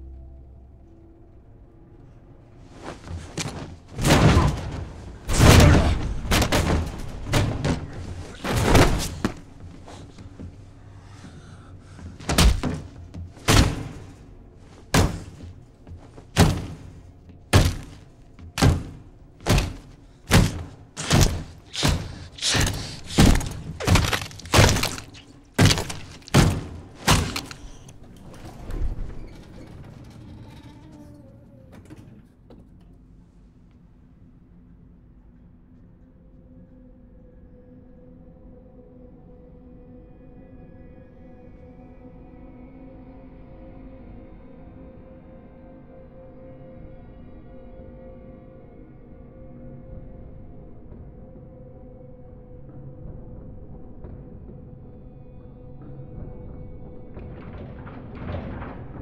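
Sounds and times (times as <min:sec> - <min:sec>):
heavy crunching stomps: 0:03.0 - 0:27.9.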